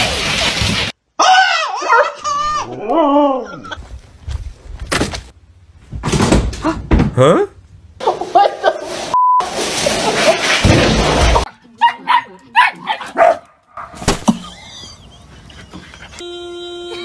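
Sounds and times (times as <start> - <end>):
dog yapping: 1.3 - 2.5.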